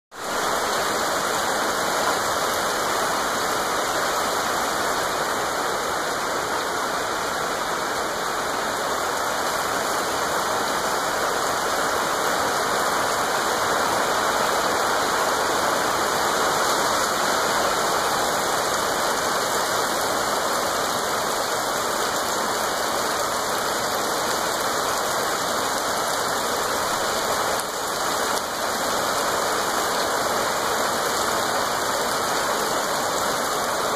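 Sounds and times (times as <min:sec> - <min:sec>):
rain on grass and trees: 0:00.1 - 0:33.9.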